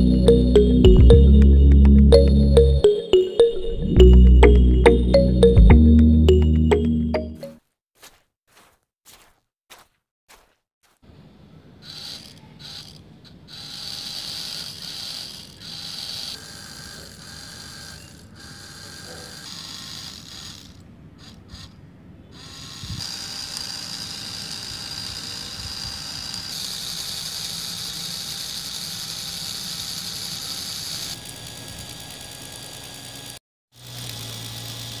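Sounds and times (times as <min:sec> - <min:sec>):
toy motors whirring with gear rattle: 0:11.8 - 0:35.0.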